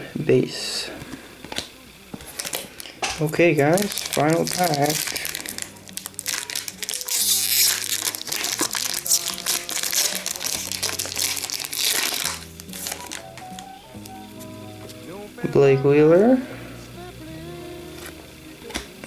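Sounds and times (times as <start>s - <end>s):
foil wrapper crinkling: 1.5s - 14.1s
background music with bass: 3.3s - 19.0s.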